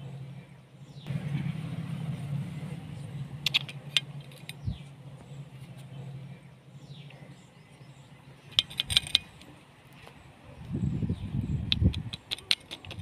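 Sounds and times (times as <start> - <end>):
low hum: 0.0 - 12.2
birds chirping: 0.0 - 13.0
sharp clicks: 11.6 - 13.0.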